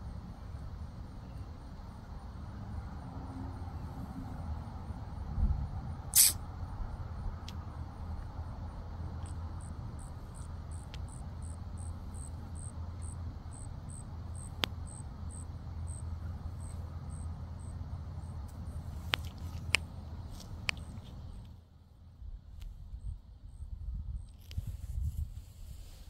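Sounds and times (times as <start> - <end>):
sharp clicks: 6.2 - 6.4
insect chirping in pulses: 9.2 - 18.8.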